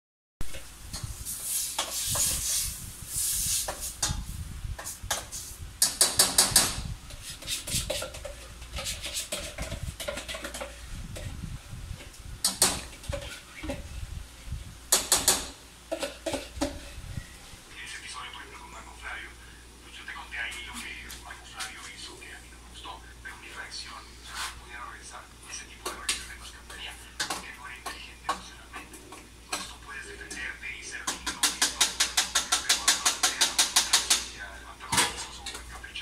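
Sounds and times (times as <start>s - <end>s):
metal spoon scraping saucepan: 0.6s - 5.4s, 7.1s - 10.9s, 15.9s - 17.0s
spoon tapping on pot: 31.0s - 34.3s.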